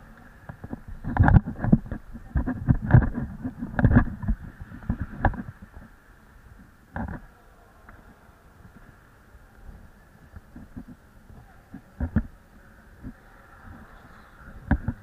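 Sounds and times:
camera being jostled and handled: 0.5s - 5.6s.

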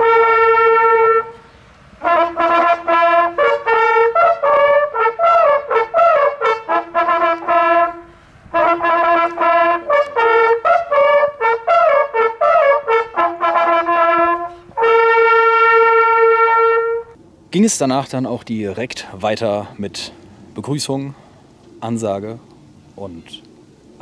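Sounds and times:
hunting horns playing fanfare: 0.0s - 17.2s.

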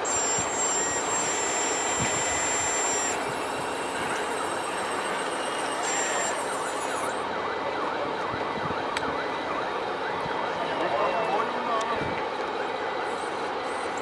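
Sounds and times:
faint high whine: 0.0s - 7.3s
siren yelping: 0.0s - 11.8s.

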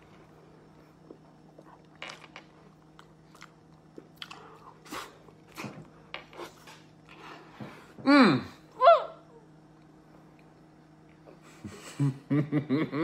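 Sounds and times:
wet chewing and smacking: 2.6s - 5.6s.

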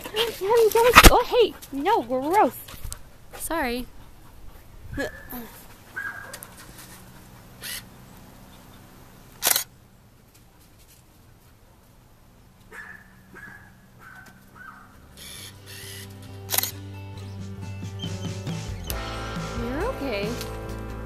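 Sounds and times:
camera shutter clicks: 9.4s - 9.7s, 15.2s - 16.8s.

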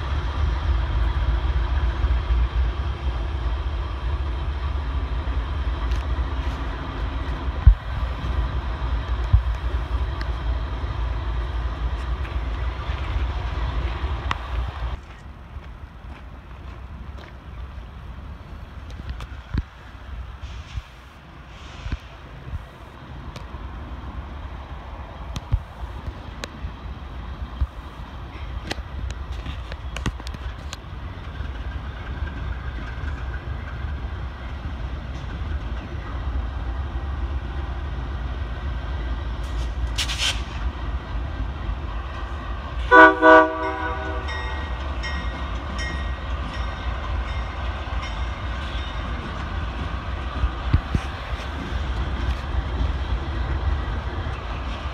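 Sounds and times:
diesel locomotive engine rumble: 0.0s - 54.9s
locomotive air horn blasts: 42.8s - 44.3s.

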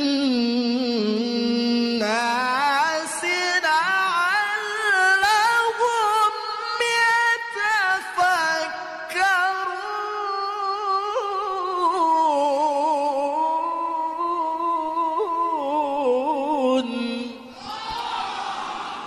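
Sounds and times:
man reciting melodically: 0.0s - 17.5s.

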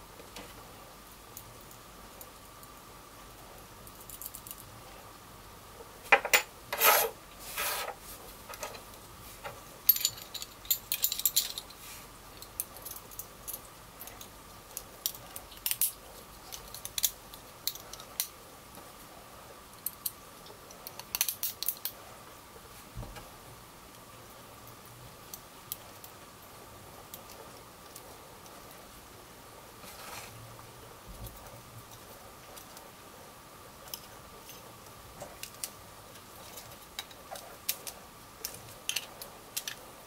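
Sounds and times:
small metal parts clinking: 9.8s - 11.8s.

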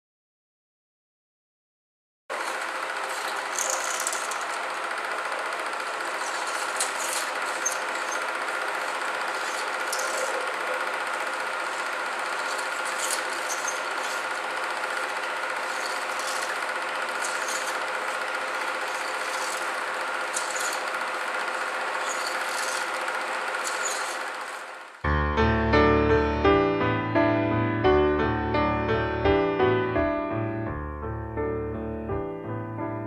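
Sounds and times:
machine running with hum and hiss: 2.3s - 25.0s.

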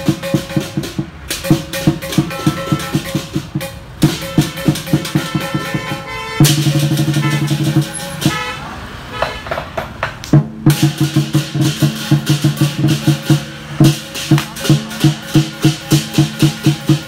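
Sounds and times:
drum and cymbals beating: 0.0s - 8.6s, 9.2s - 17.0s
vehicle horn blaring: 2.0s - 3.4s, 4.0s - 9.5s.

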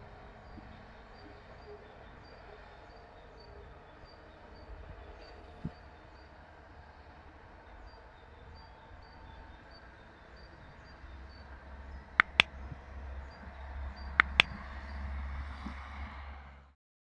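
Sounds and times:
double mouse-click sound effect: 12.2s - 12.5s, 14.2s - 14.6s.

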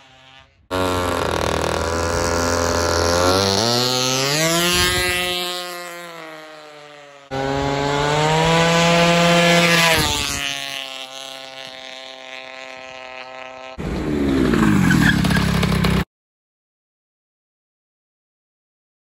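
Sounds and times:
scooter engine revving: 0.0s - 16.0s.

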